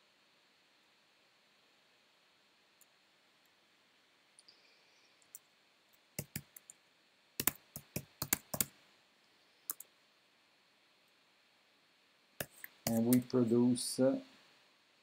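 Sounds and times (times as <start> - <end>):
computer keyboard typing: 6.2 - 6.8, 7.4 - 8.7, 9.7 - 9.9, 12.4 - 13.3.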